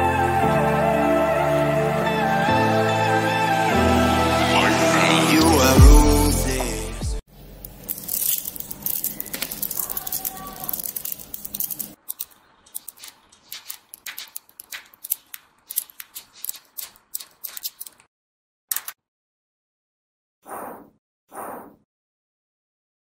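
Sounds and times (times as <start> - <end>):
magnet balls clicking together: 7.7 - 18.1, 18.7 - 18.9.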